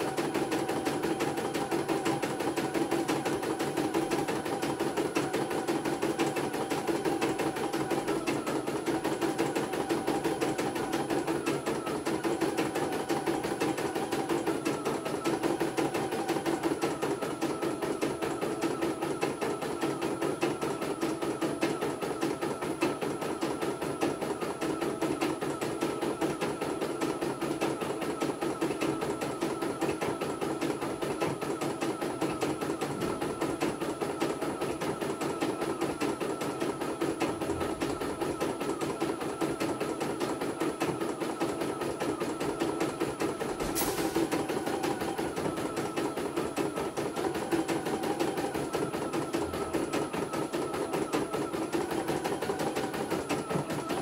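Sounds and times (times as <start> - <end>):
machine motor hum: 49.2 - 54.0.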